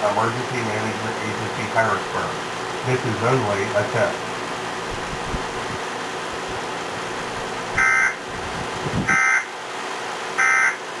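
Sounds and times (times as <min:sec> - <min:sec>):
buzzy digital data tone bursts: 0:07.8 - 0:08.2, 0:09.1 - 0:09.5, 0:10.4 - 0:10.8.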